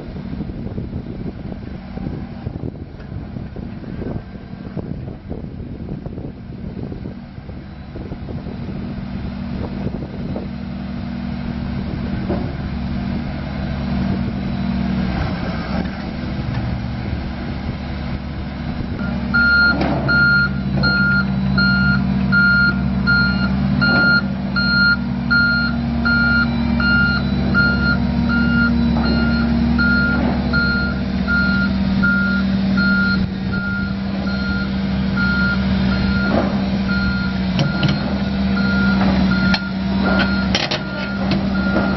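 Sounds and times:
diesel engine of drill rig: 0:00.0 - 0:41.9
warning alarm beeping: 0:18.9 - 0:41.9
machine clunks: 0:38.9 - 0:41.9.

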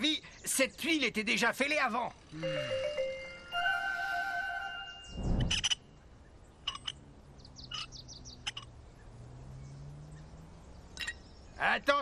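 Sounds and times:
high bird chirps: 0:04.7 - 0:11.6.

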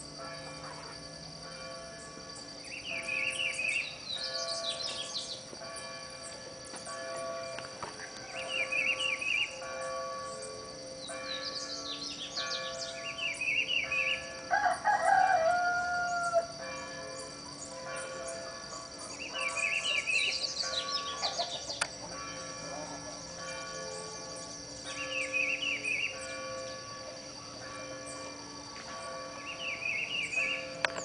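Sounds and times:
high ringing tone: 0:00.0 - 0:31.0
small birds chirping: 0:02.0 - 0:14.3, 0:16.8 - 0:22.2, 0:22.8 - 0:26.9, 0:28.9 - 0:31.0
rooster crowing: 0:14.5 - 0:16.6.

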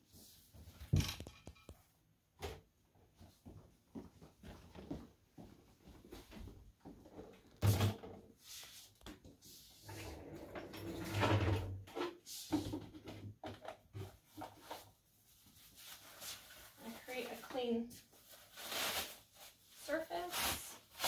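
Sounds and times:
rustling and light clattering: 0:02.8 - 0:09.9, 0:10.7 - 0:19.6.

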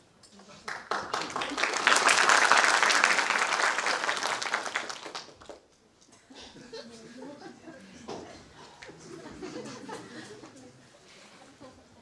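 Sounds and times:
audience applauding: 0:00.7 - 0:05.6.

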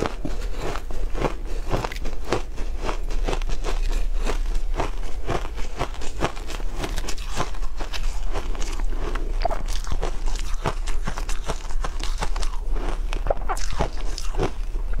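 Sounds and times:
ice being chewed: 0:00.0 - 0:15.0.

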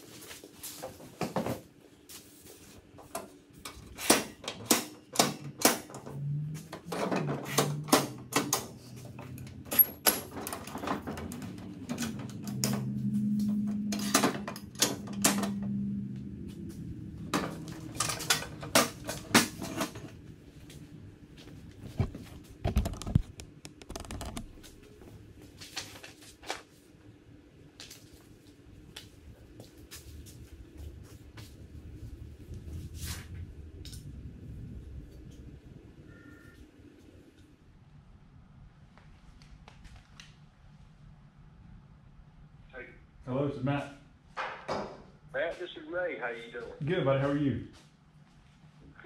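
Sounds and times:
metal clicks and clanks: 0:17.4 - 0:20.1.

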